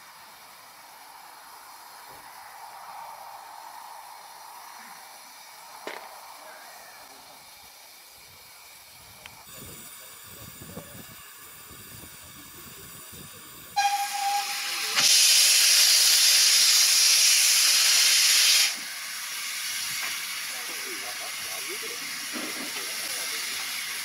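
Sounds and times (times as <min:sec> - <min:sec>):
steam hissing loudly: 0:00.0 - 0:24.0
steam locomotive whistle: 0:13.7 - 0:18.8.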